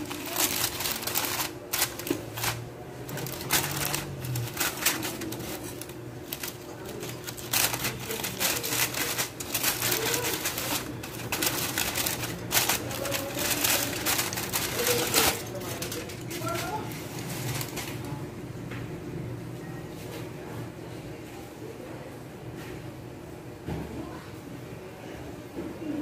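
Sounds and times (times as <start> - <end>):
aluminium foil crinkling: 0.0 - 18.2.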